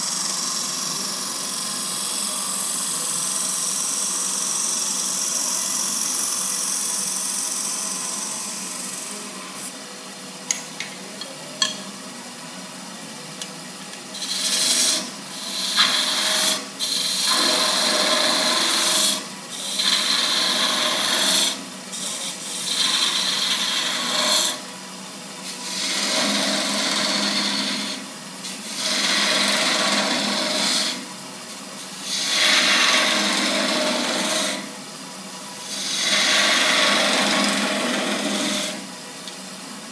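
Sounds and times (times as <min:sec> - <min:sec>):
turning tool cutting spinning wood: 0:14.2 - 0:24.7, 0:25.6 - 0:31.1, 0:32.0 - 0:34.8, 0:35.6 - 0:38.9.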